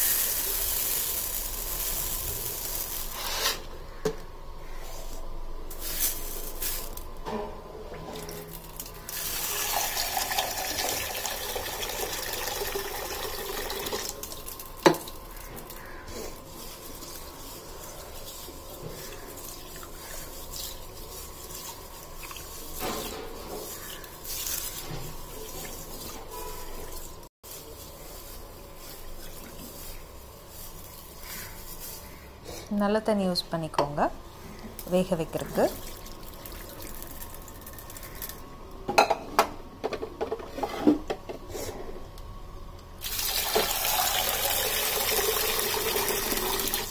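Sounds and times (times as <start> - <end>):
water running into pot: 8.2 - 15.8, 35.6 - 38.3, 43.0 - 46.9
hand swishing beans in water: 15.8 - 32.2.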